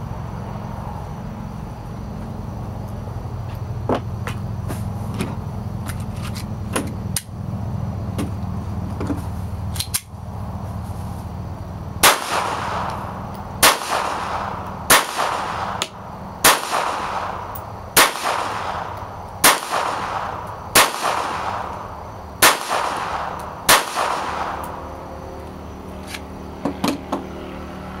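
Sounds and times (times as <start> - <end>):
gun handling clicks: 9.8 - 10.1
pistol shots ringing: 12.0 - 13.0, 13.6 - 21.8, 22.4 - 24.9.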